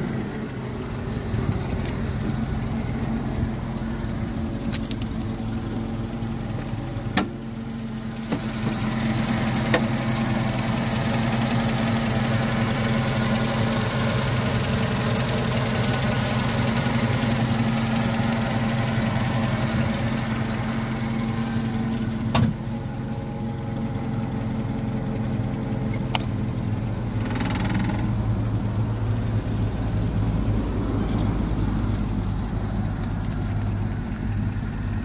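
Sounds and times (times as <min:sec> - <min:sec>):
forklift engine idling: 0:00.0 - 0:35.0.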